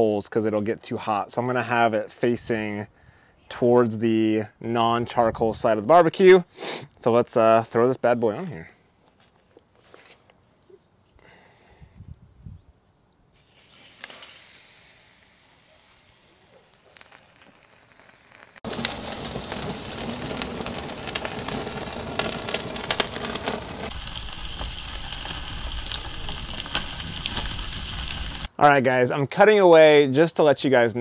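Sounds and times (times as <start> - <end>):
steak sizzling on charcoal: 13.4 - 28.5.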